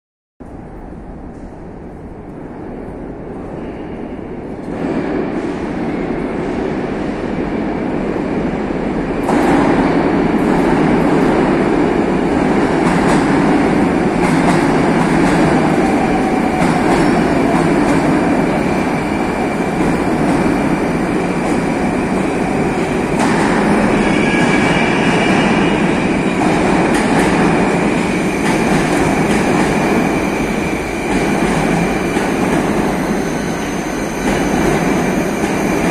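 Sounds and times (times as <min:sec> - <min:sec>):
subway train rumble: 0:00.4 - 0:35.9
high squeal of braking train: 0:15.5 - 0:26.4, 0:27.6 - 0:35.9.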